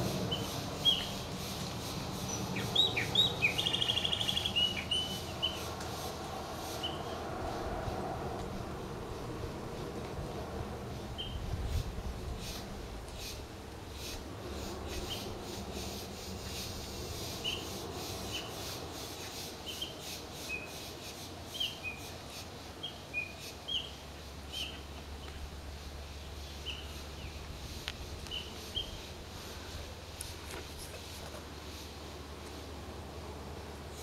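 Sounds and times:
bird chirping: 0.3 - 1.3, 2.2 - 5.7, 6.8 - 7.2, 11.2 - 11.4, 21.5 - 25.4, 26.2 - 27.4, 28.2 - 29.1.

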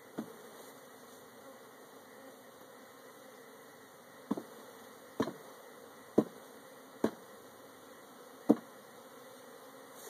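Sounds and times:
bees humming: 0.0 - 10.0
box knocking against hive: 0.1 - 0.4, 4.2 - 4.6, 5.2 - 5.5, 6.1 - 6.4, 7.0 - 7.3, 8.4 - 8.7.

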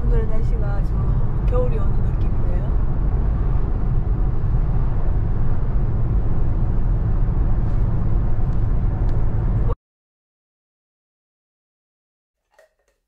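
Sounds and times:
car cabin road and engine rumble: 0.0 - 9.8.

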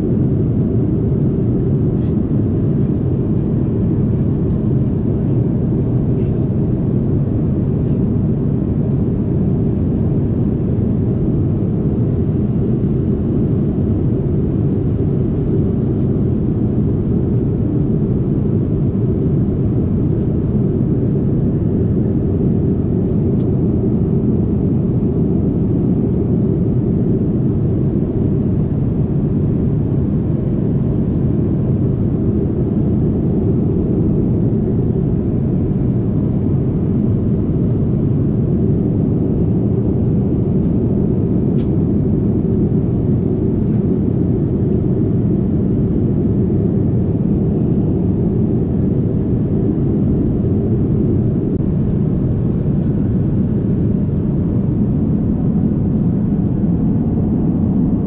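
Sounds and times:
airliner cabin engine rumble: 0.0 - 58.0.

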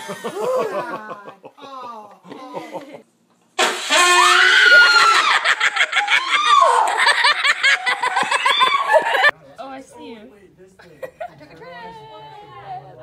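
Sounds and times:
laughter: 0.0 - 1.6, 2.3 - 3.0, 4.7 - 9.3
high-pitched human screaming: 3.8 - 7.1, 8.2 - 9.0.

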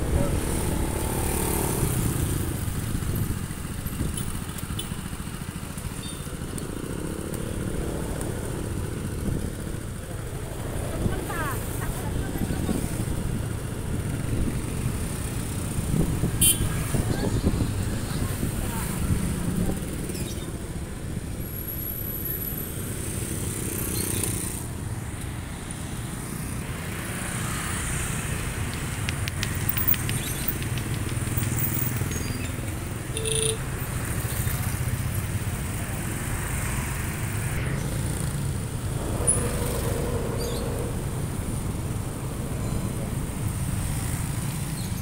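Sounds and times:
motorcycles and scooters passing: 0.0 - 45.0
quick ticks: 28.7 - 31.5.

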